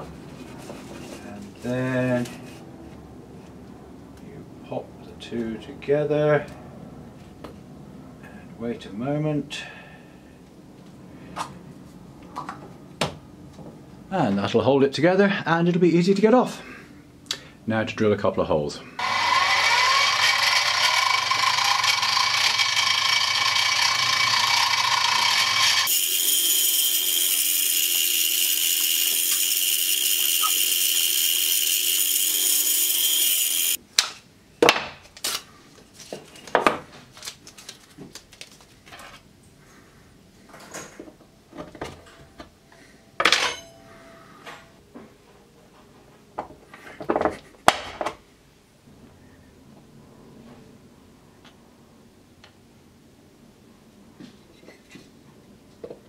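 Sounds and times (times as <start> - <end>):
drill press motor whine: 19.0 - 33.8.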